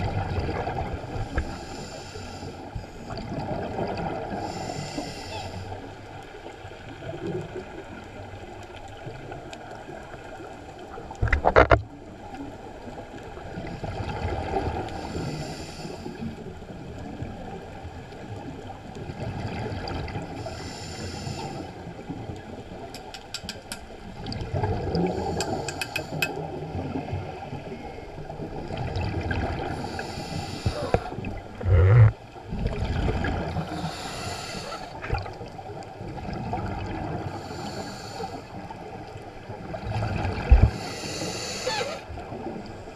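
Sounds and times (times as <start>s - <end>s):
rumble of exhaled bubbles: 0.0s - 1.8s, 2.7s - 5.2s, 6.8s - 15.2s, 24.0s - 34.0s, 34.7s - 37.9s, 38.6s - 42.8s
hiss of regulator inhalation: 4.4s - 5.6s, 20.5s - 21.7s, 25.2s - 26.3s, 29.8s - 31.2s, 33.8s - 34.9s, 37.4s - 38.4s, 40.7s - 42.0s.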